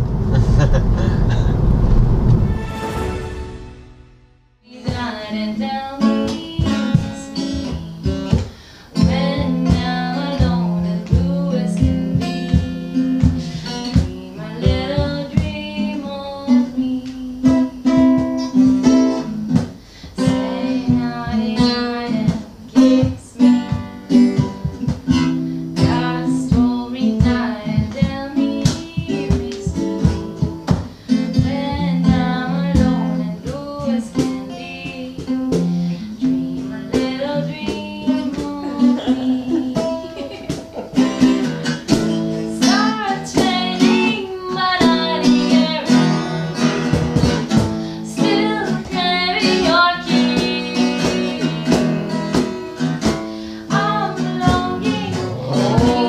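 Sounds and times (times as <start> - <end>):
acoustic guitar strumming: 0.0 - 56.0
person singing: 4.7 - 18.3, 25.8 - 30.3, 31.2 - 46.2, 53.6 - 56.0.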